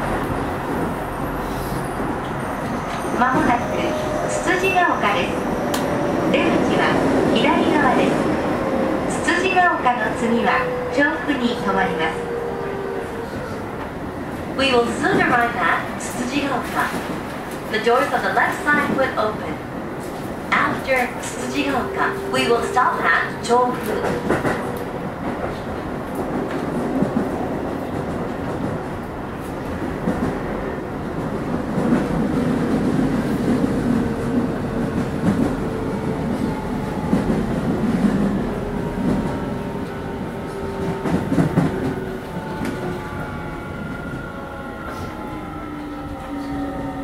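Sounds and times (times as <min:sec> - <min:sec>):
train wheels rumbling on rails: 0:00.0 - 0:47.0
rail joint clacking: 0:02.0 - 0:08.1, 0:20.0 - 0:28.8.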